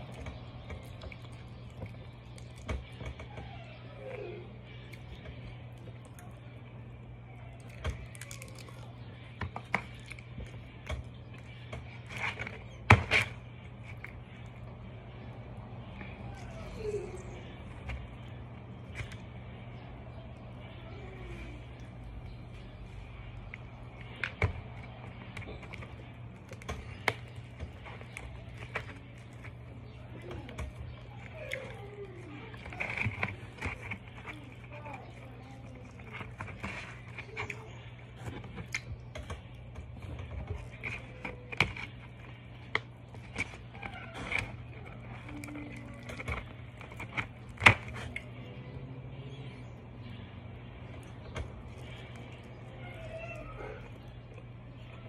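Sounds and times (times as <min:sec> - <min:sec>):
low steady hum: 0:00.0 - 0:55.0
fingers picking through fried fish: 0:07.3 - 0:55.0
fried fish crackling apart: 0:07.6 - 0:09.0.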